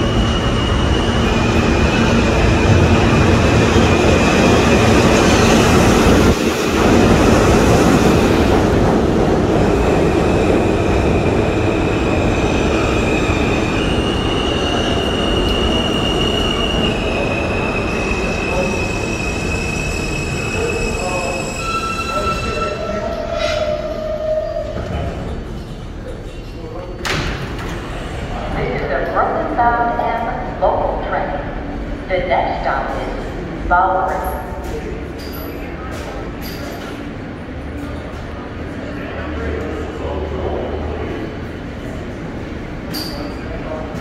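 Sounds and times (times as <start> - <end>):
high brake squealing: 18.2 - 24.0.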